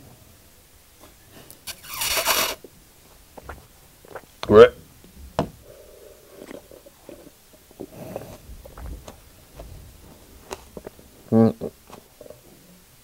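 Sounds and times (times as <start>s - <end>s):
person gulping a drink: 5.6s - 8.4s.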